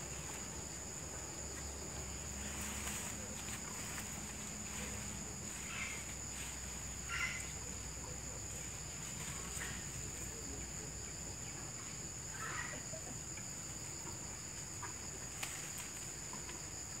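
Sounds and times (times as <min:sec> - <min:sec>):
leaves rustling: 0:00.0 - 0:10.4, 0:14.6 - 0:17.0
high-pitched insect drone: 0:02.2 - 0:07.6.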